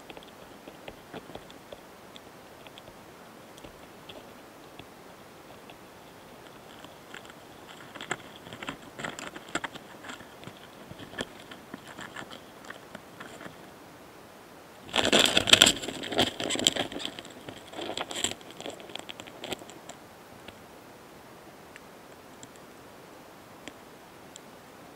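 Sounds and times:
beetles scratching and clicking: 0.0s - 13.8s, 14.8s - 20.6s.

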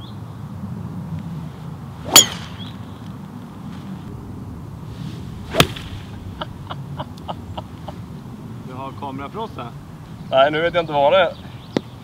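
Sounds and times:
clubhead cracking ball: 2.0s - 2.8s, 5.5s - 6.2s
golf club swish: 2.0s - 2.8s, 4.8s - 6.5s.

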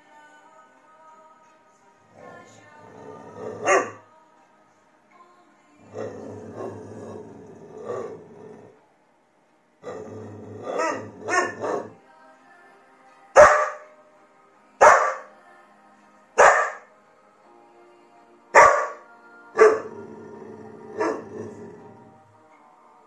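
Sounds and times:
faint music: 0.0s - 23.0s
dog barking: 3.6s - 4.0s, 10.7s - 12.0s, 13.4s - 13.9s, 14.8s - 15.3s, 16.4s - 16.9s, 18.6s - 19.0s, 19.6s - 19.9s, 21.0s - 21.3s.

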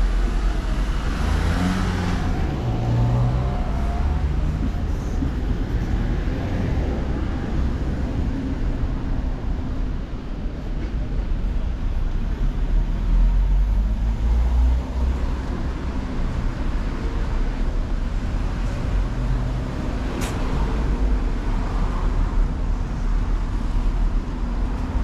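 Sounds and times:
car engines passing: 0.0s - 10.4s, 11.5s - 25.0s.

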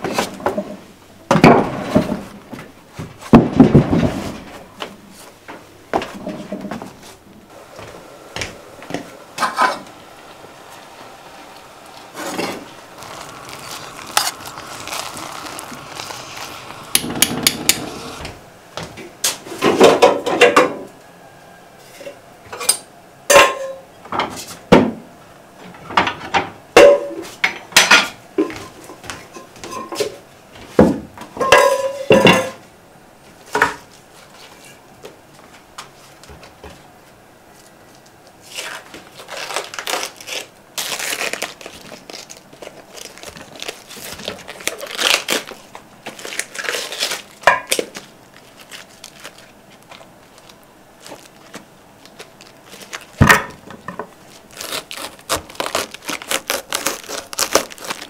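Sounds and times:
steady noise: 4.7s - 19.8s.

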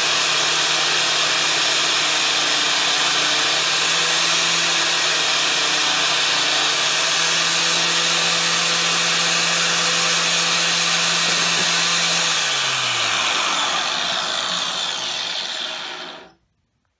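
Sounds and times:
angle grinder grinding steel: 0.0s - 16.4s
motor winding down: 8.2s - 16.4s.

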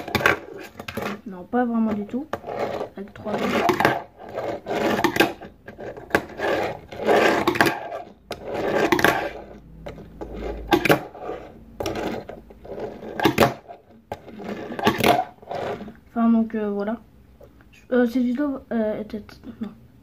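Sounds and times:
small wheels rolling on tabletop: 0.0s - 16.0s.

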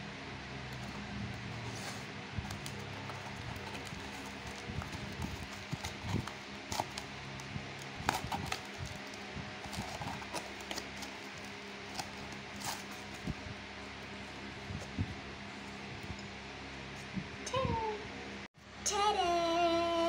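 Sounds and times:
faint steady hum: 0.0s - 20.0s
foam rustling: 0.8s - 15.2s.

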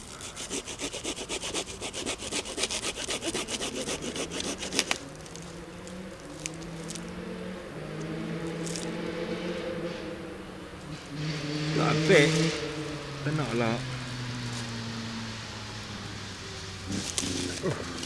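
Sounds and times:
hand saw cutting branch: 0.0s - 5.1s, 16.9s - 18.0s.

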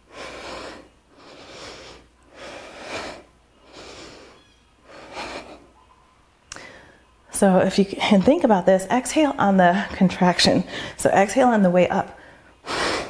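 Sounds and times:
woman breathing heavily: 0.0s - 5.8s, 6.5s - 7.2s, 10.6s - 11.0s, 12.1s - 13.0s.

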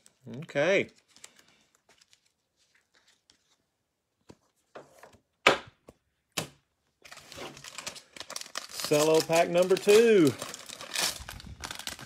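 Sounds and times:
faint rustles of cards: 0.0s - 4.7s
cellophane crinkles: 7.1s - 12.0s.

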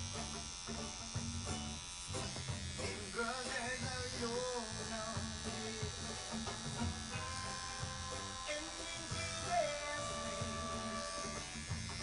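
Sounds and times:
tattoo machine buzzing: 0.0s - 12.0s
background music with singing: 2.7s - 12.0s.

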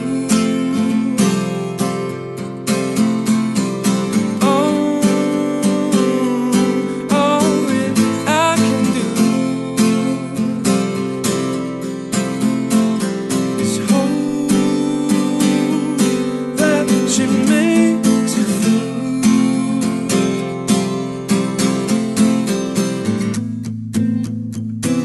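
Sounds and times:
man singing: 0.0s - 1.9s, 4.4s - 11.1s, 13.5s - 20.8s
acoustic guitar strumming: 0.0s - 25.0s.

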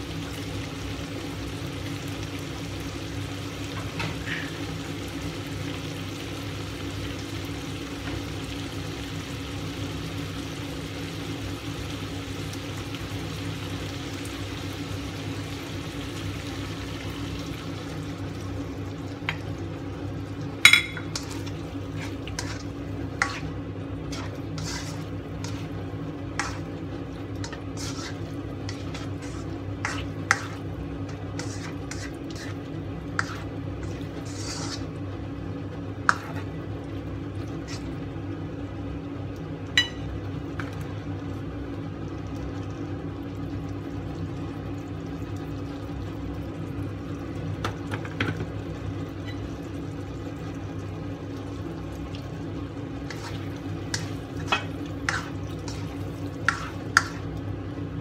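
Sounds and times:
steady low hum: 14.2s - 47.8s, 48.6s - 58.0s
spatula scraping in a wok: 20.7s - 35.2s, 35.9s - 36.7s, 37.4s - 38.1s, 51.9s - 57.5s.

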